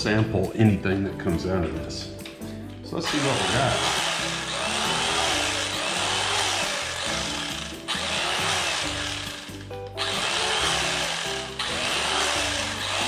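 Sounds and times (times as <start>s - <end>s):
background music: 0.0s - 13.0s
electric carving knife running: 3.1s - 13.0s.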